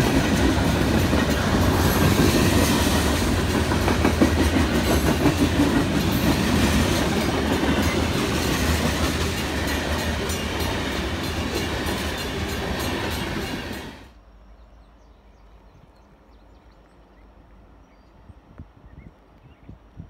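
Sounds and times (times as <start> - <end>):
freight train rolling past: 0.0 - 14.2.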